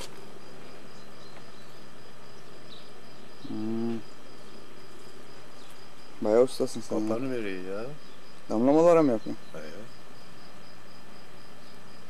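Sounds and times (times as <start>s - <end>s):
crickets chirring: 0.0s - 12.0s
steady hiss: 0.0s - 12.0s.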